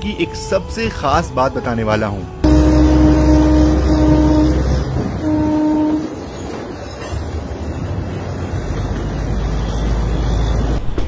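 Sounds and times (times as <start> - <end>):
train rumbling on tracks: 0.0 - 11.0
diesel locomotive horn blasts: 2.4 - 6.4.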